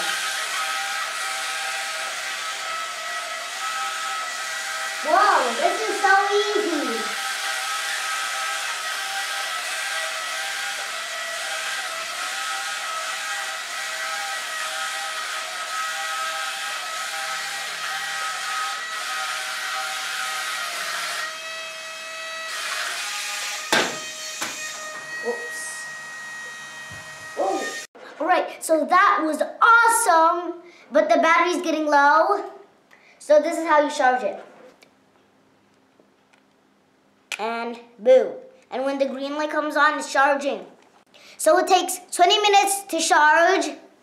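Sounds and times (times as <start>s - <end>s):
suction fan whine: 0.0s - 27.9s
sharp knock: 23.7s - 24.6s.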